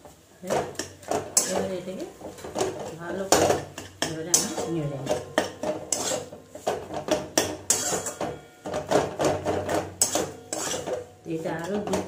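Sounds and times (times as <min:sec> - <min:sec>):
metal spatula scraping a pan: 0:00.5 - 0:12.0.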